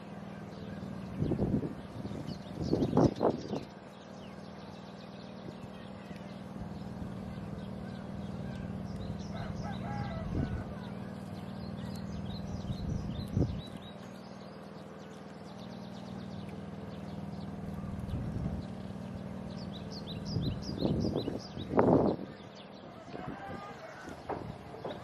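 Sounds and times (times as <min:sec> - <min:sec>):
small birds chirping: 0:00.0 - 0:25.0
steady low hum: 0:00.0 - 0:25.0
dull knocks: 0:24.2 - 0:25.0.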